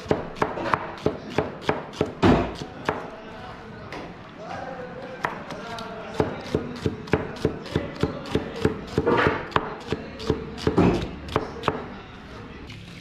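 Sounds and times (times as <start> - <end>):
knife chopping on cutting board: 0.0 - 3.0, 6.2 - 11.8.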